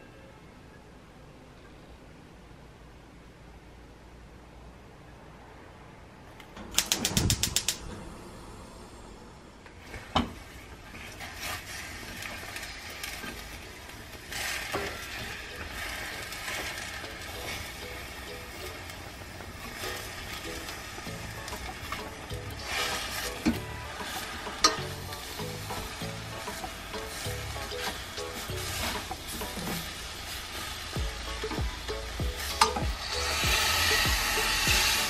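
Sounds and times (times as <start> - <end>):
run of sharp clicks: 6.4 - 7.9
spatula stirring food in pot: 9.8 - 35.0.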